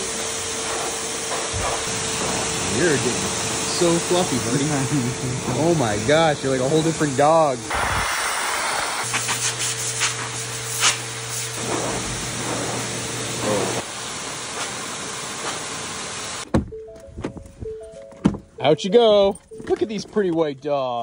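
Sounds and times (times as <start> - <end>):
blow dryer hissing: 0.0 - 16.5
background music: 16.7 - 20.9.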